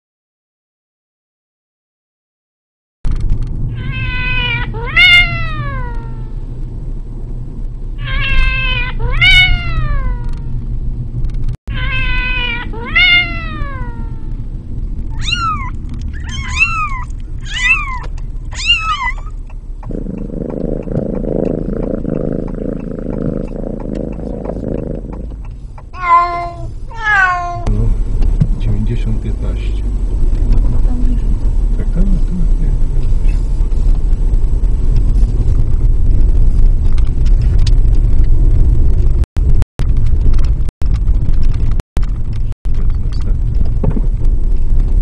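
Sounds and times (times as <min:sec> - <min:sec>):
cat meowing loudly: 0:03.7 - 0:06.4, 0:08.0 - 0:10.6, 0:11.7 - 0:14.4, 0:15.1 - 0:19.4, 0:26.0 - 0:27.7.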